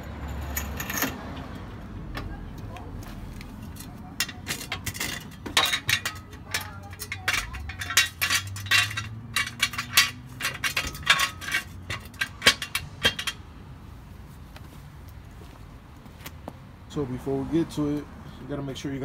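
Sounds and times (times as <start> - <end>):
jack stand clinking on metal: 3.8 - 13.4.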